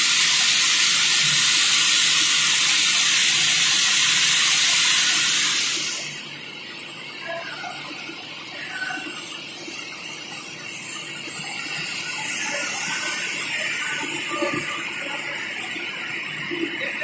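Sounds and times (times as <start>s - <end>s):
hissing spray of liquid: 0.0s - 6.3s.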